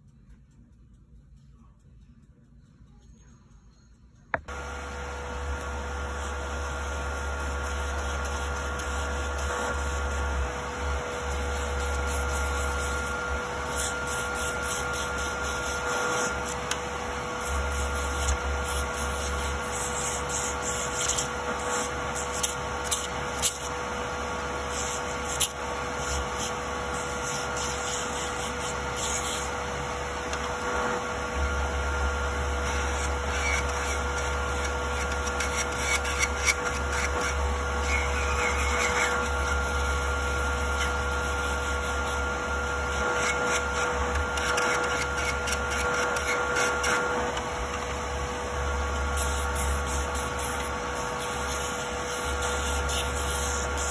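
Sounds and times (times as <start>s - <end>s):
dust collector fan hum: 4.3s - 53.9s
electric nail drill grinding: 4.4s - 53.9s.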